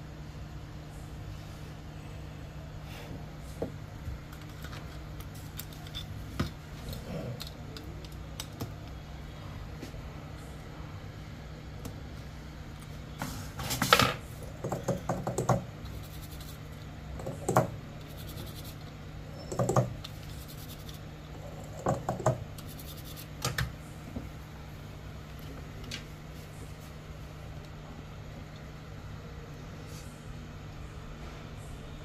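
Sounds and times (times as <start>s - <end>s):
low steady hum: 0.0s - 32.0s
small clicks and scrapes of parts: 4.3s - 9.0s, 15.8s - 23.6s.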